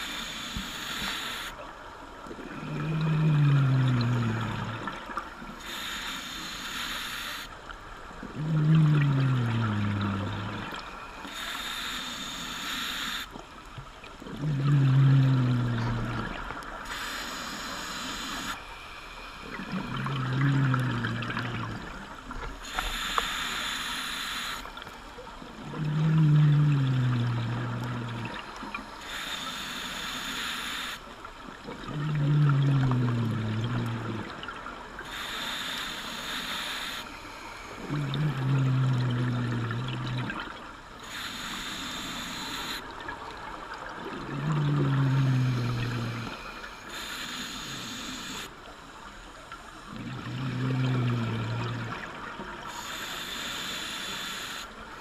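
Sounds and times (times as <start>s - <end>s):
regulator air hiss: 0.0s - 1.6s, 5.6s - 7.6s, 11.2s - 13.3s, 16.8s - 19.5s, 22.6s - 24.9s, 28.8s - 31.1s, 35.0s - 37.9s, 41.0s - 42.9s, 45.2s - 48.6s, 52.6s - 54.8s
exhaled bubbles rumbling: 2.3s - 5.5s, 8.2s - 10.9s, 13.9s - 16.9s, 19.5s - 22.6s, 25.4s - 28.8s, 31.6s - 34.9s, 37.8s - 40.7s, 42.9s - 46.4s, 49.8s - 52.7s.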